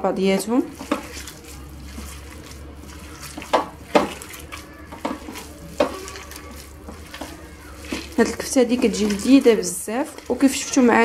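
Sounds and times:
wet squelching of kneaded meat: 0.0 - 11.0.

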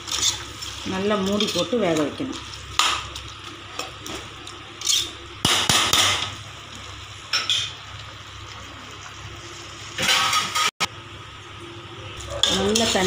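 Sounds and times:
metal spatula scraping a pot: 0.1 - 0.4.

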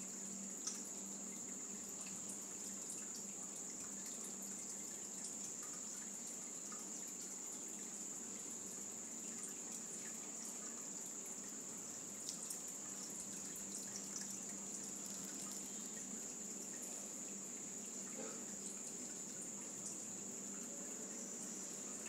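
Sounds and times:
soft hiss: 0.0 - 22.0
faint ticks: 0.2 - 10.7.

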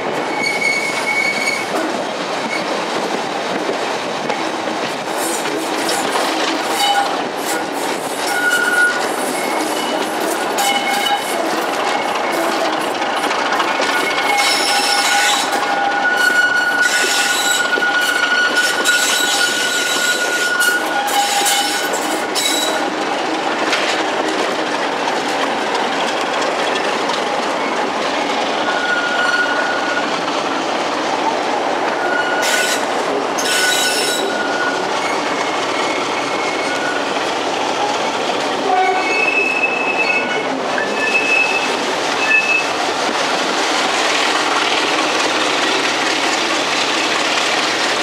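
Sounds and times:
train wheels rumbling on track: 0.0 - 48.0
wheel squeal: 0.3 - 1.8, 6.6 - 12.6, 13.7 - 22.8, 28.7 - 30.1, 32.0 - 32.8, 33.4 - 37.1, 38.8 - 42.7.

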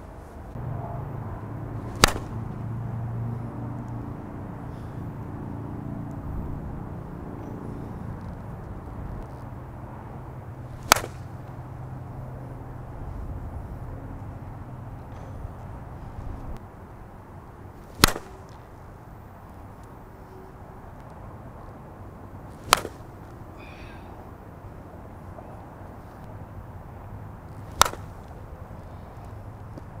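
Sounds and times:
low steady hum: 0.0 - 30.0
softball striking a bat: 1.8 - 2.5, 10.8 - 11.6, 17.9 - 18.6, 22.6 - 23.0, 27.7 - 28.4.

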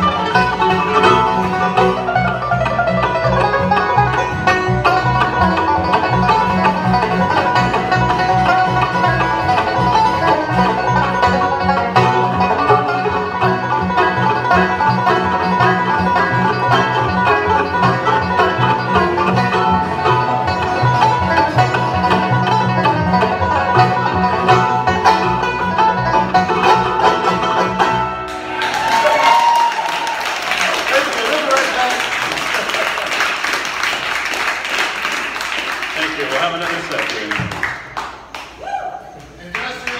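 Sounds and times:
upright bass: 0.0 - 28.5
acoustic guitar: 0.0 - 28.6
banjo: 0.0 - 28.8
mandolin: 0.0 - 28.8.

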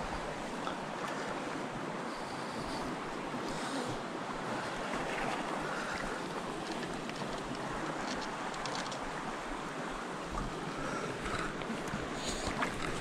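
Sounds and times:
creek water rushing over rocks: 2.8 - 13.0.

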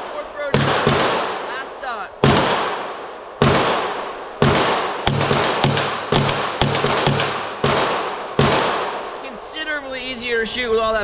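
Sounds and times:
pistol shots echoing indoors: 3.4 - 9.0.

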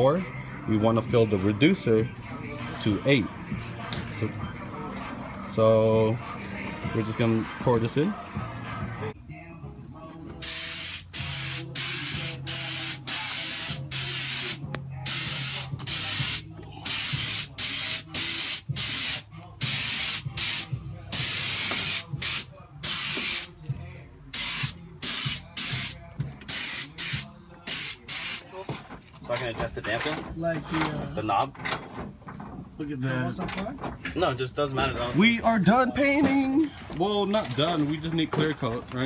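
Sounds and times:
paint spray gun hissing: 10.4 - 23.5, 24.4 - 28.4.

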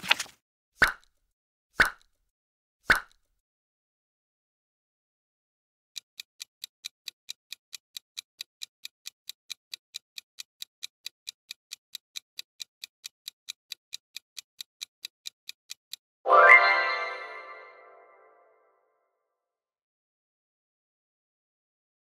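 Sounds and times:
fast clock ticking: 6.0 - 16.1.

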